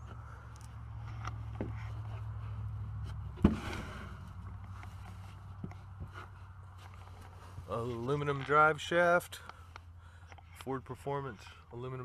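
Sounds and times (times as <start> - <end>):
camera handling rumble: 0.0 - 2.4.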